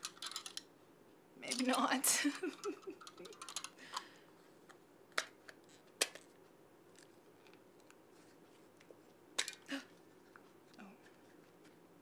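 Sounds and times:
plastic clicks and rattles: 0.0 - 0.7, 1.5 - 1.9, 2.5 - 4.1.

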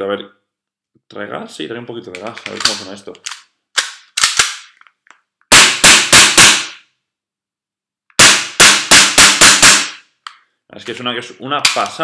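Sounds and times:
airsoft pistol shots: 5.5 - 6.8, 8.2 - 10.0.

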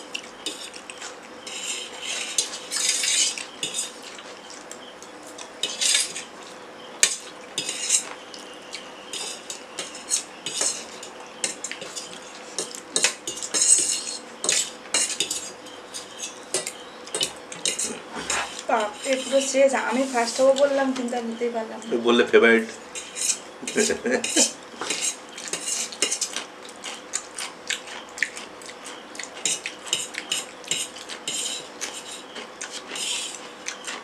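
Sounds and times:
fork clinking on metal plate: 9.1 - 19.4, 23.0 - 26.4, 29.4 - 33.4.

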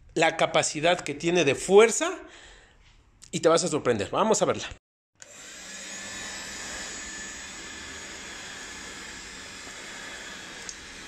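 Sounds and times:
handheld vacuum running: 5.2 - 11.0.

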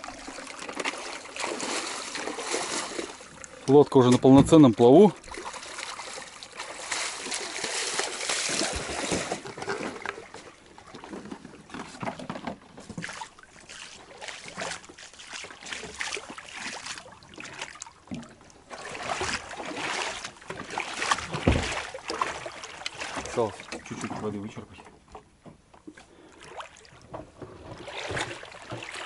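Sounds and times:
footsteps splashing in water: 0.0 - 24.3, 25.9 - 29.0
thump: 21.3 - 21.8.

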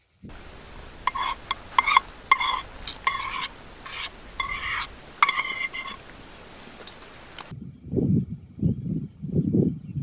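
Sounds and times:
spoon scraping food in container: 0.3 - 7.5.

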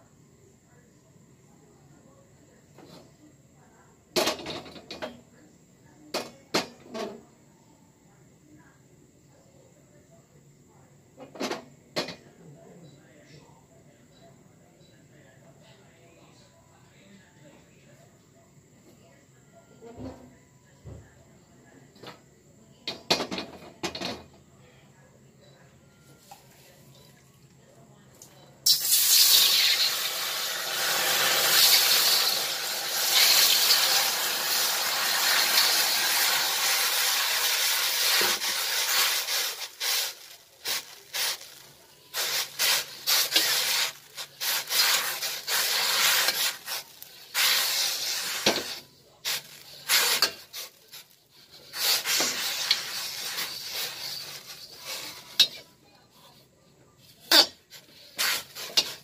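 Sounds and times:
water sizzling in hot wok: 28.6 - 50.7, 51.6 - 55.5
steel wool scrubbing wok: 28.6 - 55.6, 57.3 - 59.0.

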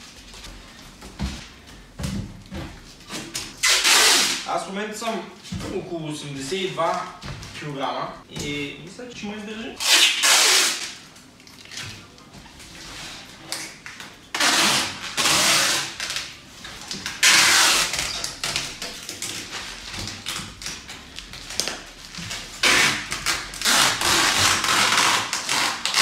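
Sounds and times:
packing tape screeching off roll: 3.1 - 4.6, 9.8 - 11.0, 13.1 - 16.3, 17.0 - 20.8, 21.4 - 26.0.

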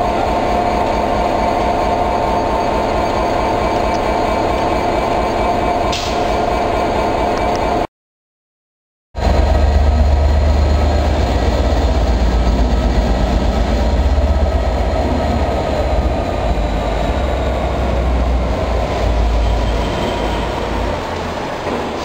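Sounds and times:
diesel locomotive engine rumble: 0.0 - 7.9, 9.2 - 22.0.

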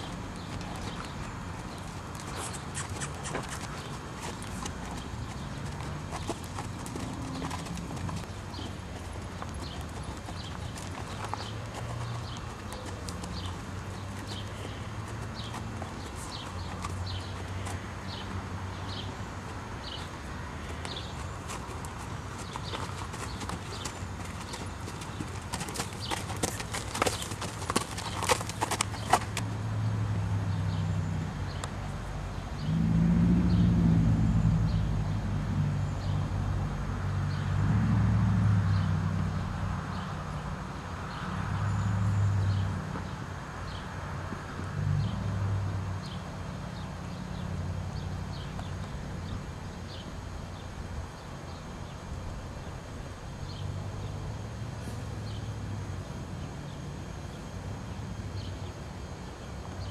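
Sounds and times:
hooves walking on dirt: 0.0 - 29.7
steady low hum: 0.0 - 59.9.

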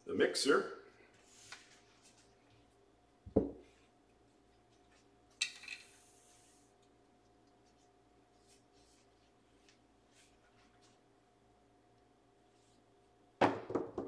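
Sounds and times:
puck knocking on felt table: 3.3 - 3.6, 13.4 - 14.0.

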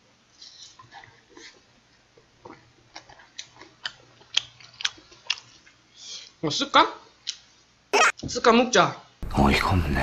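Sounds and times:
wet chewing and mouth smacks: 2.4 - 5.8.

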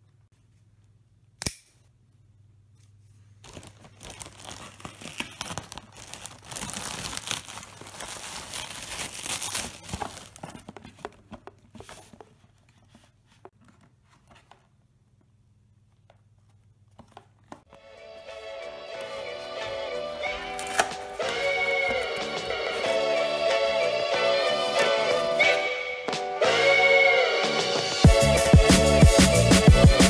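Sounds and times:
plastic mailer bag tearing: 3.4 - 10.7
plastic crinkling and crackling: 3.4 - 12.9.

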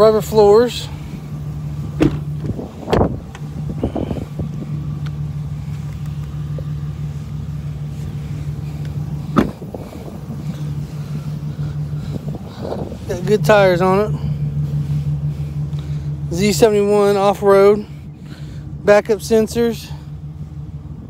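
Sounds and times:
pickup truck idling: 0.0 - 21.0
door clunking: 1.9 - 3.5, 9.3 - 9.7
door slamming: 2.0 - 2.3.

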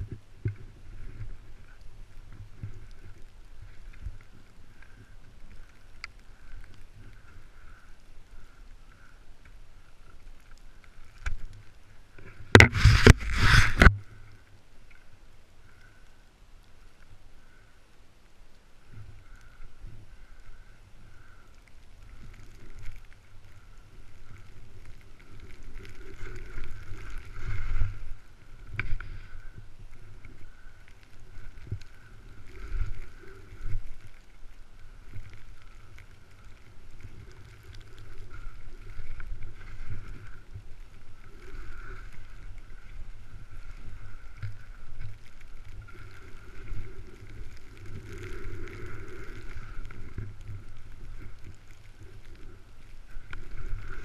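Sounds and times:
skis scraping in snow: 11.6 - 13.9, 22.5 - 30.0
wind rushing over microphone: 12.5 - 14.0.

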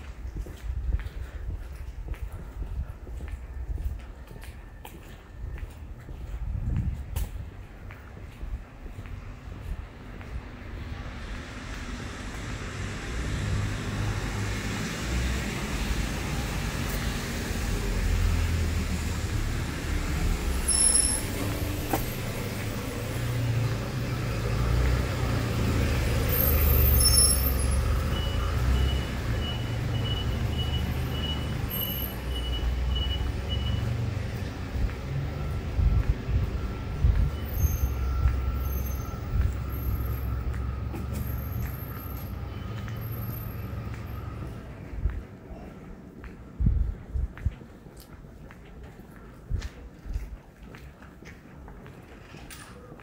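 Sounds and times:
vehicle engines rumbling past: 0.0 - 53.0
brief high squeaks: 20.6 - 22.1.

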